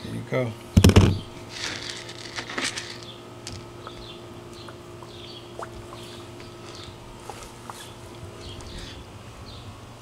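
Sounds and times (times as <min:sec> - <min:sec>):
steady low hum: 0:00.0 - 0:10.0
small birds chirping: 0:02.9 - 0:09.8.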